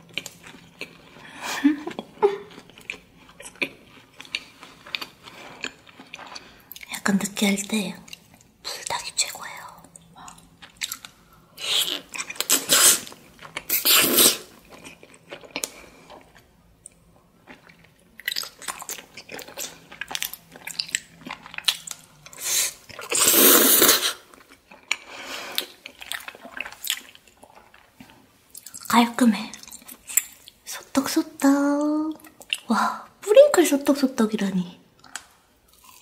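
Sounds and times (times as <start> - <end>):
noodle slurping and chewing: 10.6 - 16.5, 17.4 - 28.9.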